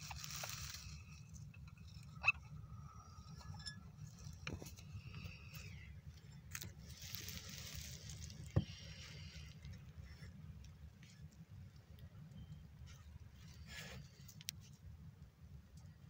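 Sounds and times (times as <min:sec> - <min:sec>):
soft rustling: 0:00.0 - 0:02.1, 0:03.5 - 0:11.9
low steady rumble: 0:00.0 - 0:16.0.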